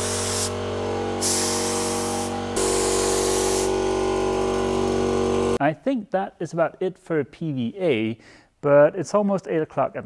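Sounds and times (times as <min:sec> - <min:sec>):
spray gun hissing in bursts: 0:00.0 - 0:05.4.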